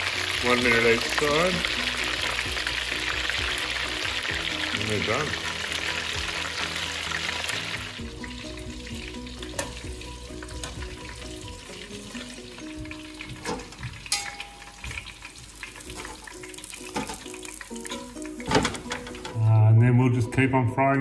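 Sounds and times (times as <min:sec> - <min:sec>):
oil sizzling: 0:00.0 - 0:19.4
soft background music: 0:00.0 - 0:21.0
metal tongs clinking: 0:14.0 - 0:15.0.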